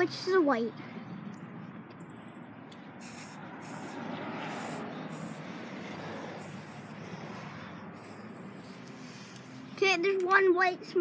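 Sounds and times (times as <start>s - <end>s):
steady low rush: 0.1s - 9.8s
spray paint can hissing: 3.0s - 7.2s, 7.9s - 9.5s.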